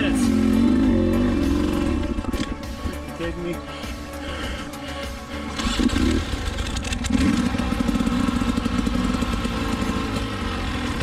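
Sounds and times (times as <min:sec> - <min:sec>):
dirt bike engine revving: 0:00.0 - 0:02.6, 0:05.4 - 0:11.0.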